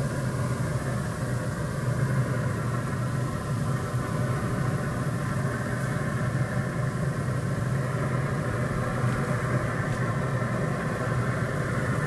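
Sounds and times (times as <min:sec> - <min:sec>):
grill motor and fan humming: 0:00.0 - 0:12.0.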